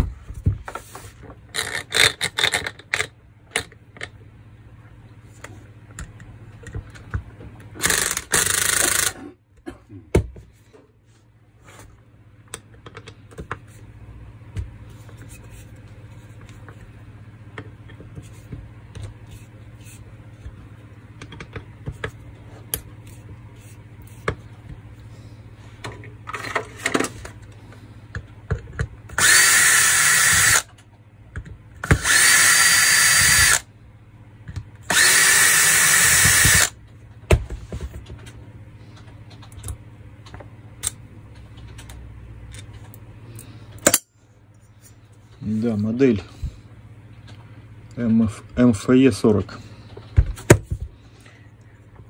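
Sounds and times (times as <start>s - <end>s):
cordless drill running: 7.8s - 9.2s, 29.2s - 30.7s, 31.8s - 33.6s, 34.9s - 36.8s.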